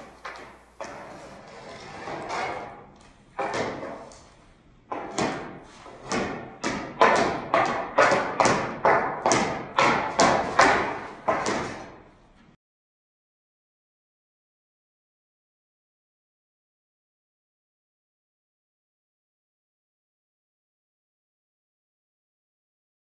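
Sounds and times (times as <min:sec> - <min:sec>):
hockey stick hitting ball on concrete: 0:00.0 - 0:01.4, 0:03.4 - 0:04.3, 0:04.9 - 0:12.1.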